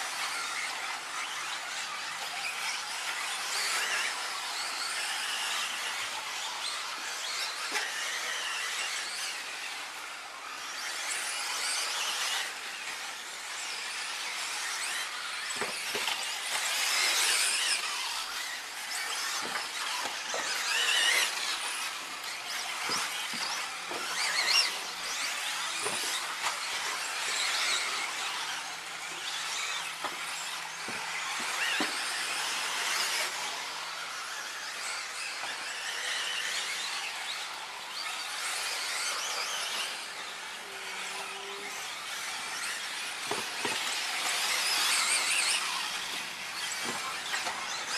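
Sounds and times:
electric rc cars whining: 0:00.0 - 0:47.9
rc cars knocking on track: 0:00.0 - 0:47.9.

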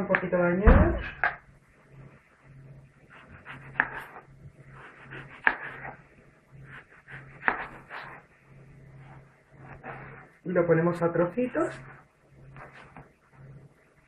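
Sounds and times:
knife tapping and scraping: 0:03.2 - 0:04.2, 0:04.8 - 0:06.0.

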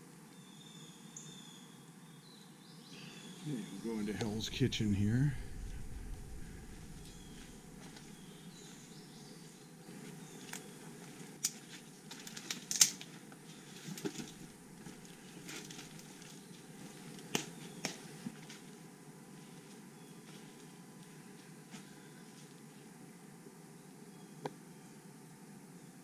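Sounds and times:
footsteps snapping twigs: 0:11.3 - 0:18.7.

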